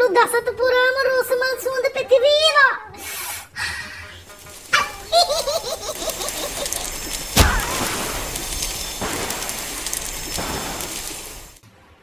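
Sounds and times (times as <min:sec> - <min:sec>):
sharp booming hits: 0:07.3 - 0:11.6.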